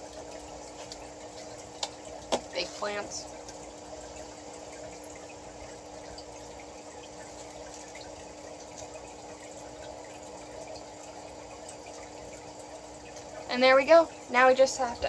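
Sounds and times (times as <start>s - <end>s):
pump humming with watery hiss: 0.0s - 15.0s.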